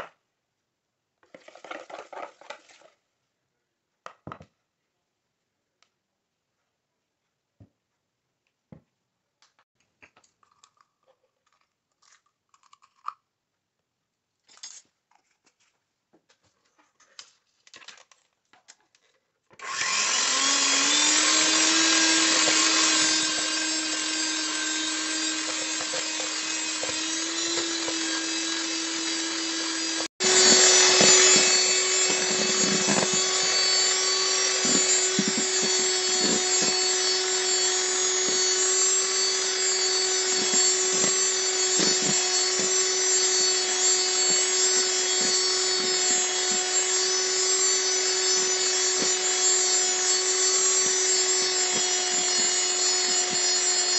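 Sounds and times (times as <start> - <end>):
electric mixer motor whining: 19.6 - 53.9.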